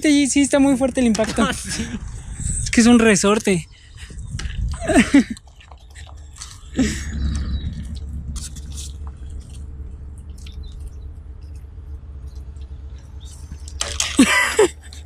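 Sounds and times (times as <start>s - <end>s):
zipline trolley rumbling on cable: 6.0s - 13.8s.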